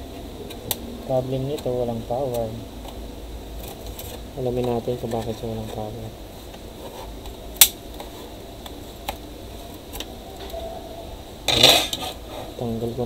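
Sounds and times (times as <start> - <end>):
plastic case crackling snap: 7.2 - 10.6.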